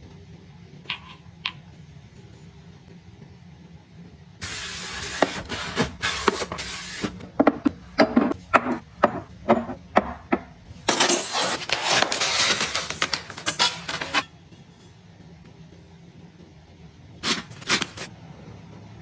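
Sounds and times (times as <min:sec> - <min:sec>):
foam box rustling and scraping: 0:04.4 - 0:07.2, 0:10.9 - 0:14.3.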